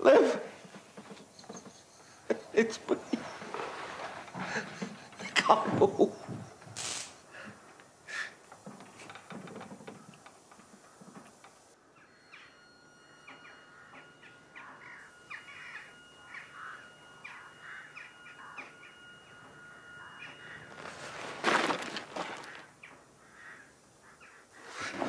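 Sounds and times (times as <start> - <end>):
crows cawing: 13.7 - 19.1, 19.9 - 24.6.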